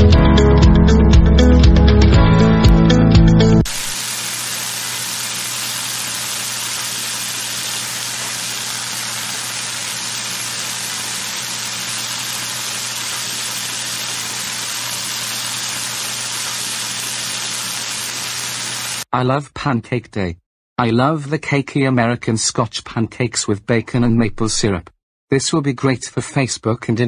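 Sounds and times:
pancakes sizzling in a pan: 3.7s - 19.1s.

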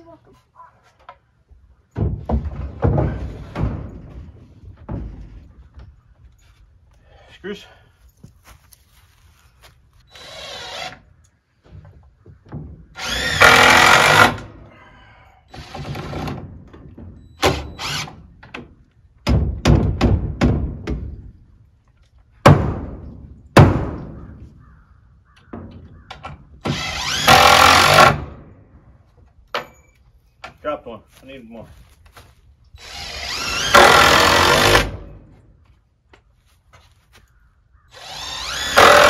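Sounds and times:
cordless drill whirring: 10.1s - 11.0s.

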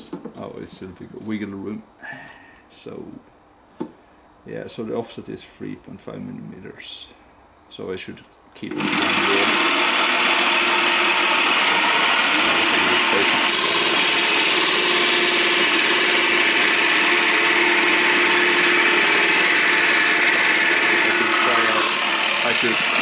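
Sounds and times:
jigsaw cutting plastic sheet: 8.7s - 23.0s.

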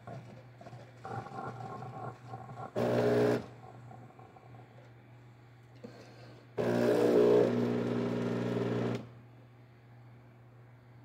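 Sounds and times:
espresso machine pump buzzing: 2.7s - 3.6s, 6.6s - 9.1s.

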